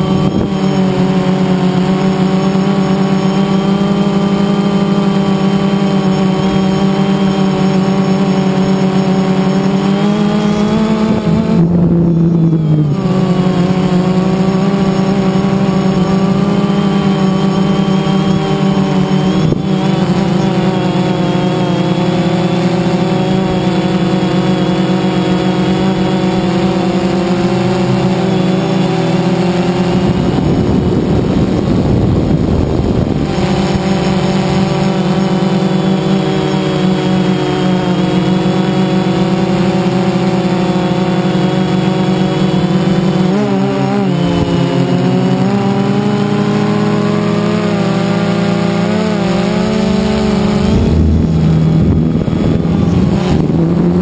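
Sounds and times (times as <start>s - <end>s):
drone propellers buzzing: 0.0s - 54.0s
rough low rushing noise: 49.2s - 54.0s.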